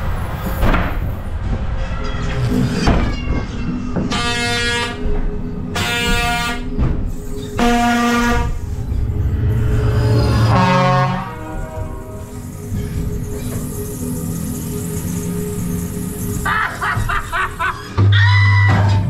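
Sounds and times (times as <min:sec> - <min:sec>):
loud horn-like blasts: 0:04.1 - 0:05.1, 0:05.7 - 0:06.8, 0:07.5 - 0:08.8, 0:09.5 - 0:12.5.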